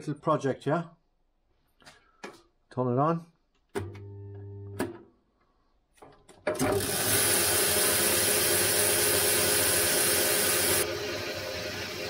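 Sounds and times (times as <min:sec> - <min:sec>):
metal lathe running: 0:06.6 - 0:12.0.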